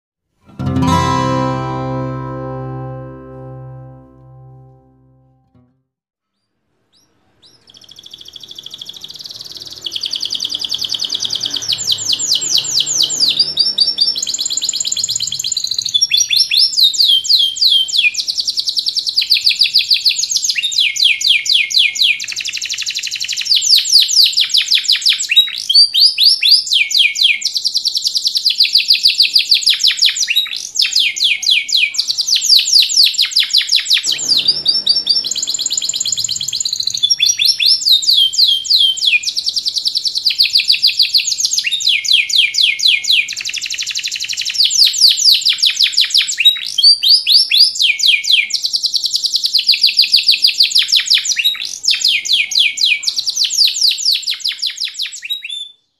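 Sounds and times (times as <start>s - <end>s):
canary singing trills: 7.0s - 20.0s, 29.7s - 44.6s.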